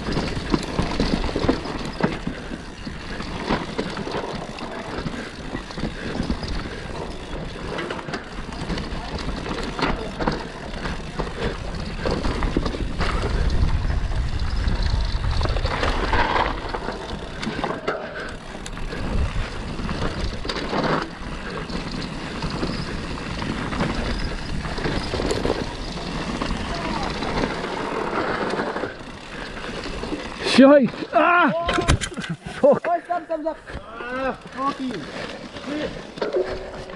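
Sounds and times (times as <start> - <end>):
bike rattling over bumps: 0.0 - 36.9
bike tyres rolling on dirt: 0.0 - 36.9
wind rumbling on microphone: 11.4 - 17.4, 18.6 - 20.6.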